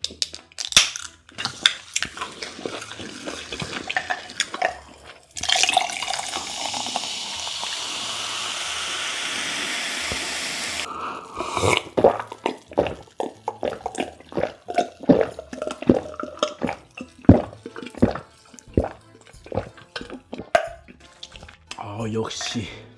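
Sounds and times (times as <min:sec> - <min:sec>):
soda fizzing as poured: 0:01.5 - 0:21.5
gulping: 0:10.8 - 0:21.6.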